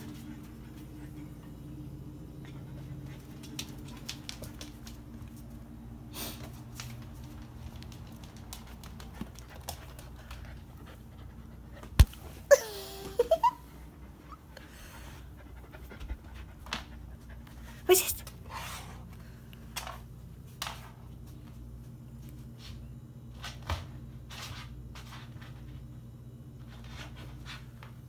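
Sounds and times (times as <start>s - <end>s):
puppy panting: 8.2s - 12.0s, 13.8s - 17.9s.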